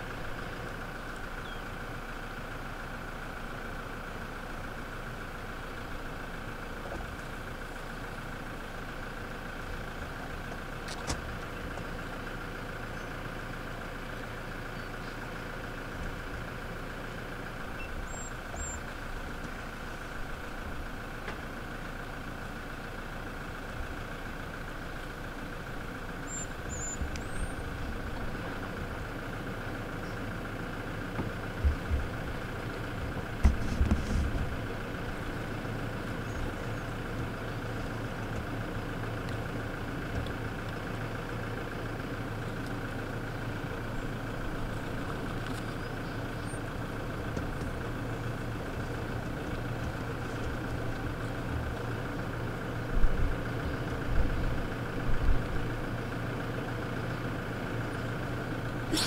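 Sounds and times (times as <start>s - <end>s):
vehicle engine idling: 0.0s - 59.0s.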